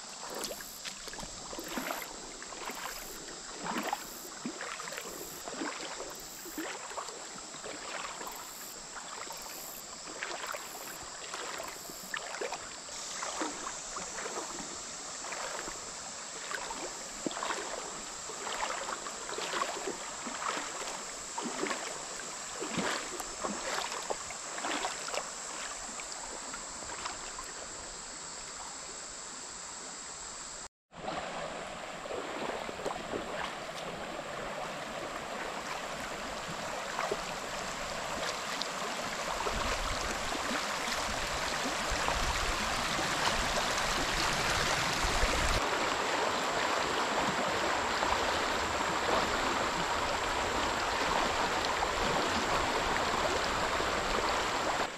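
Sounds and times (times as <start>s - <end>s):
creek water running: 0.0s - 54.9s
wind rumble on microphone: 41.0s - 45.6s.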